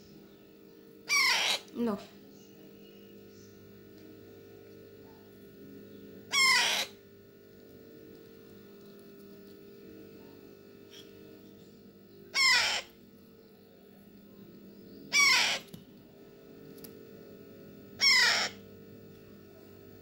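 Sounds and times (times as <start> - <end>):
steady low hum: 0.0 - 20.0
parrot chick begging calls: 1.1 - 1.7, 6.3 - 7.0, 12.3 - 12.9, 15.1 - 15.7, 18.0 - 18.6.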